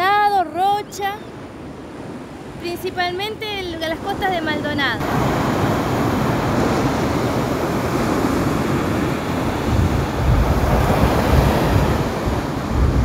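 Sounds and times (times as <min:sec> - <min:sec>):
surf washing on rocky shore: 0:01.4 - 0:13.0
wind buffeting microphone: 0:05.0 - 0:13.0.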